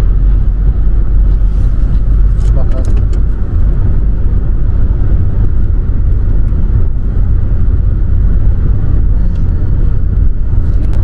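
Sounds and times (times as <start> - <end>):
car interior road rumble: 0.0 - 11.0.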